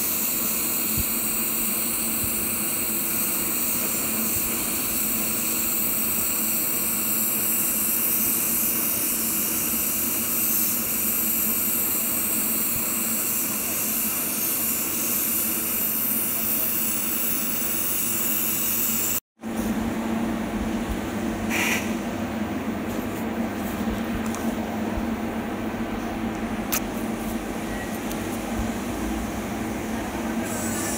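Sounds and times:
welding arc hissing: 0:00.0 - 0:19.2, 0:21.5 - 0:22.0, 0:30.4 - 0:30.9.

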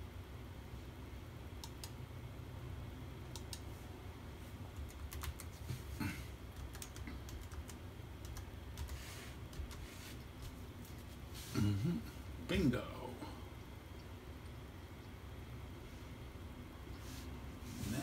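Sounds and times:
steady low hum: 0:00.0 - 0:18.0
keyboard keys clicking: 0:04.8 - 0:05.6, 0:06.6 - 0:09.8.

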